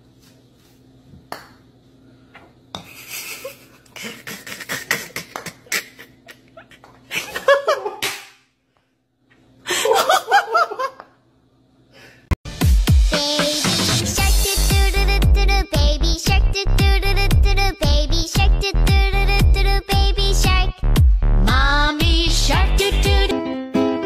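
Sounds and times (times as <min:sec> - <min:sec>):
people laughing: 0:02.9 - 0:08.0.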